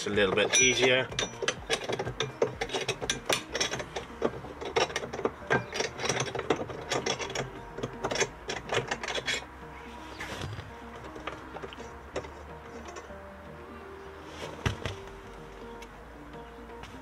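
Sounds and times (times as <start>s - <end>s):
ratchet wrench clicking: 0.2s - 9.5s.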